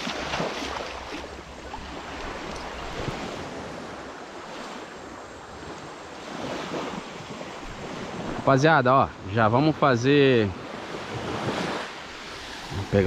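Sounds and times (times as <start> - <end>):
waves washing onto beach: 0.0 - 13.0
wind on microphone: 1.1 - 8.5.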